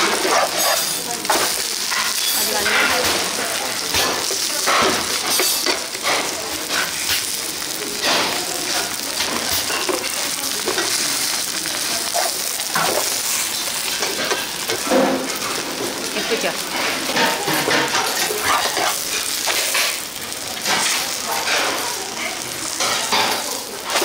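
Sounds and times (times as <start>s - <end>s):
food sizzling in oil: 0.0s - 24.0s
kitchen utensils clicking: 0.0s - 24.0s.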